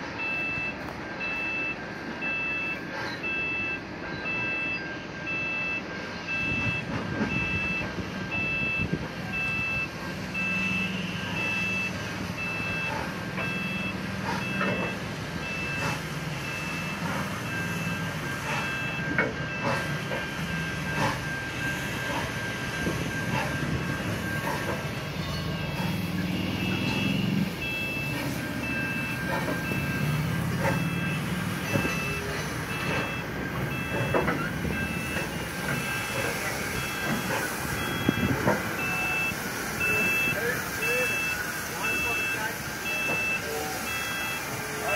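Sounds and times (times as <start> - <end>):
level crossing alarm beeping: 0.0 - 44.9
train carriages rumbling: 0.0 - 44.9
train wheel clacks: 10.9 - 44.9.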